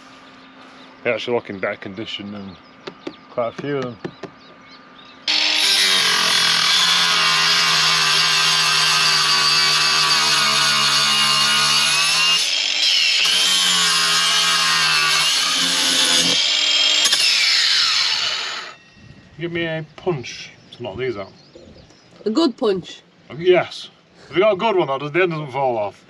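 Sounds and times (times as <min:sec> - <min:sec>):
electric power tool running: 0:05.3 - 0:18.8.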